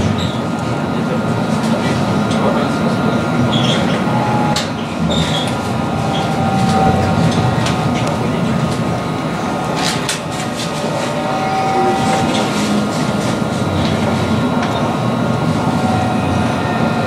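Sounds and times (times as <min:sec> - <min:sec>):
tram wheels rumbling on rail: 0:00.0 - 0:17.0
thin motor whine: 0:05.4 - 0:13.2.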